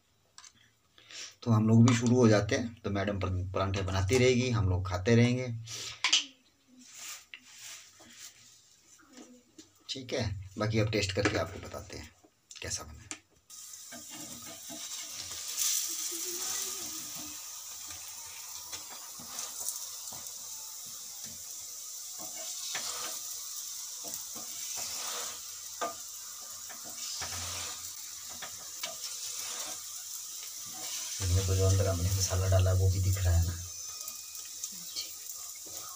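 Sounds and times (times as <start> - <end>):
flatbread sizzling in oil: 6.8 - 9.0, 13.5 - 35.9
spatula scraping and tapping: 22.2 - 23.2, 24.0 - 29.9.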